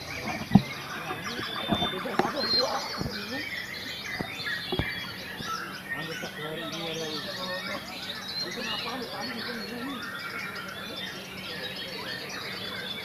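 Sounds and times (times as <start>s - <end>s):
birds singing: 0.0s - 13.0s
low thumps: 0.1s - 5.6s.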